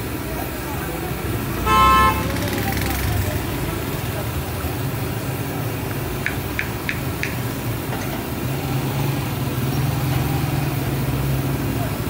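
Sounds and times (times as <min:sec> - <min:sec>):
food frying in hot oil: 0:03.3 - 0:12.0.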